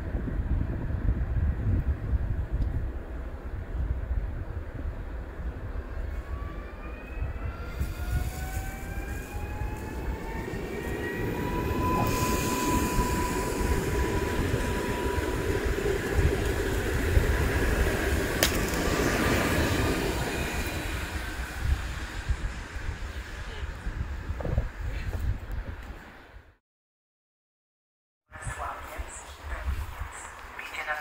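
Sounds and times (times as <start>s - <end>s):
electric train drive whine: 5.2s - 24.7s
train wheels rolling on rails: 6.0s - 24.8s.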